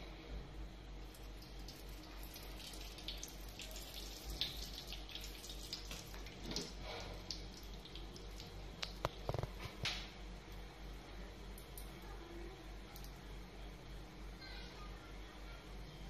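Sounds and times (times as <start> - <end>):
oil crackling in a pan: 1.0 - 10.6.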